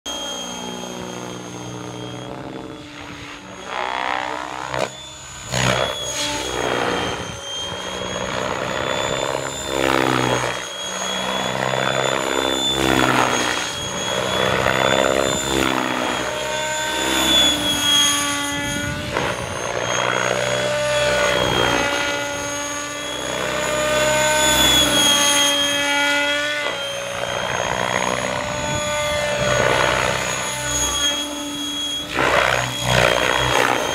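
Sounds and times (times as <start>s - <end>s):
model helicopter motor whine: 0.1s - 33.9s.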